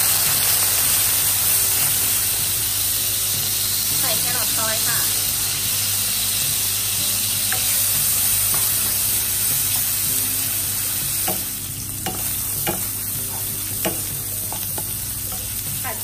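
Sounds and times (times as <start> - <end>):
food sizzling in oil: 0.0 - 16.0
spatula tapping and scraping pan: 7.5 - 10.0, 11.2 - 15.8.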